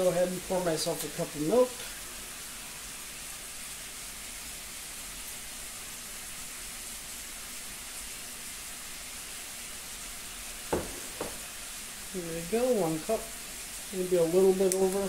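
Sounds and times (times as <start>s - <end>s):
meat sizzling in a pot: 0.0s - 15.0s
knock: 10.7s - 11.4s.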